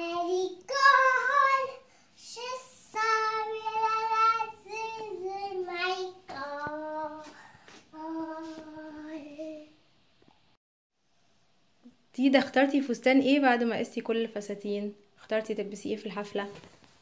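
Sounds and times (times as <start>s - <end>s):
girl singing: 0.0s - 9.8s.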